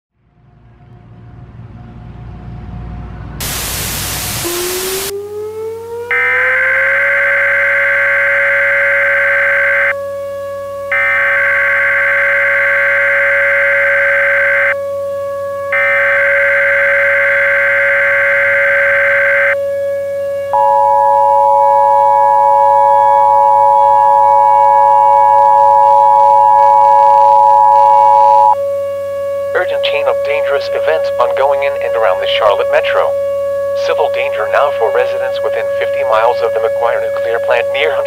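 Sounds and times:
rising tone into steady drone: 0.2 - 30.2
loud burst of static: 3.4 - 5.1
screeching data tones: 6.1 - 10.0, 10.9 - 14.8, 15.8 - 19.6, 20.6 - 28.6.

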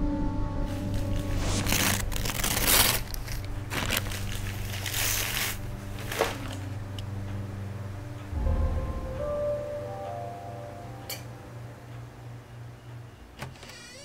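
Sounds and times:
low steady hum: 0.0 - 14.0
paper rustling and crinkling: 0.8 - 7.0.

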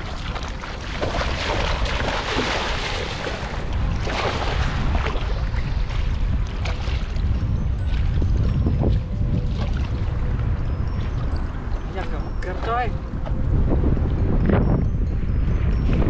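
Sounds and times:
wading through shallow water: 0.0 - 14.6
wind rumble on microphone: 0.0 - 16.0
cast net splashing onto water: 0.9 - 5.3.

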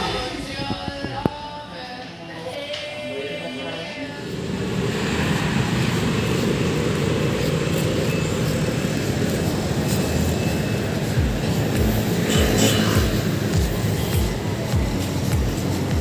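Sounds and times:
low rumble of traffic: 3.0 - 16.0
background music: 11.2 - 16.0.

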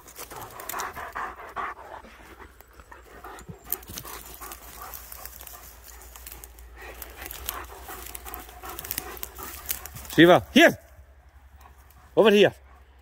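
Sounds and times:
dog panting: 0.0 - 10.2
twigs crackling underfoot: 0.0 - 12.3.

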